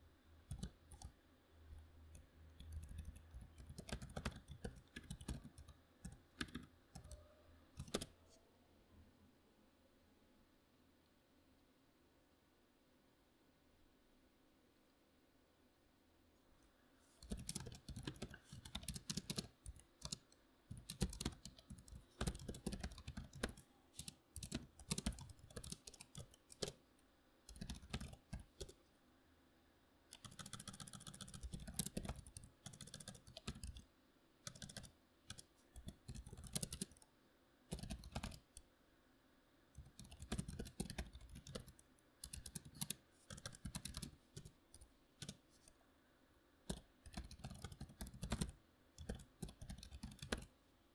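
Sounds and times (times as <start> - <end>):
computer keyboard typing: 0.5 - 1.1, 2.1 - 7.2, 7.8 - 8.2, 17.2 - 26.8, 27.5 - 28.8, 30.1 - 33.8, 34.4 - 37.0, 37.7 - 38.6, 39.8 - 45.4, 46.7 - 50.5.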